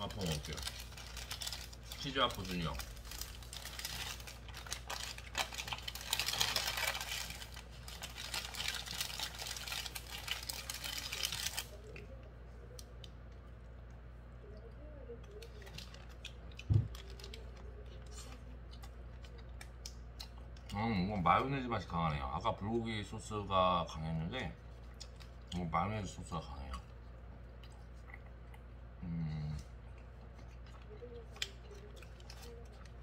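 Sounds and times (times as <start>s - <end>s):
paper wrapper crinkling: 0.0s - 12.0s, 15.4s - 18.4s, 31.0s - 33.0s
person chewing: 15.2s - 21.0s, 24.7s - 25.6s, 26.6s - 33.0s.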